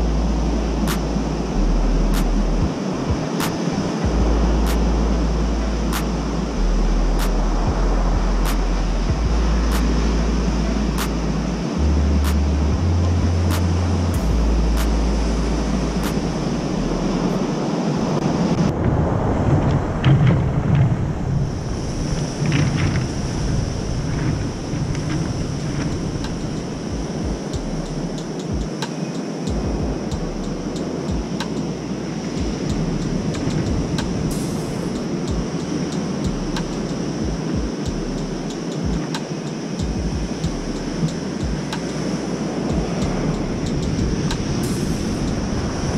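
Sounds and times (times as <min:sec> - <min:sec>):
wind buffeting microphone: 0:00.0 - 0:45.9
surf breaking on cobblestones: 0:18.2 - 0:27.5.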